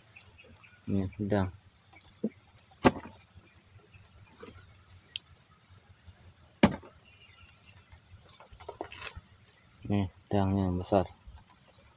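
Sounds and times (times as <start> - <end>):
insects chirring: 0.0 - 11.9
sharp knocks in plastic tub: 2.8 - 3.2, 6.6 - 6.9.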